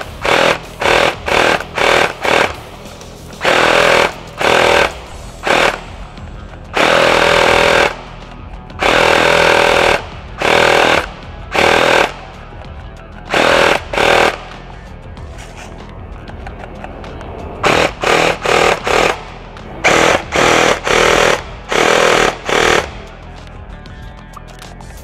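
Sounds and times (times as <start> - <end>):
airsoft gun firing bursts: 0.0 - 2.8, 3.4 - 6.1, 6.7 - 8.1, 8.8 - 12.3, 13.3 - 14.6, 17.6 - 23.1.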